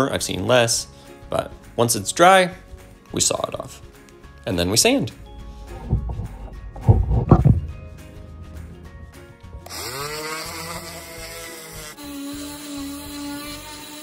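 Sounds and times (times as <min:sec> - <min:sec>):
coping saw strokes: 0:09.6 - 0:14.0
orbital sander running: 0:09.6 - 0:14.0.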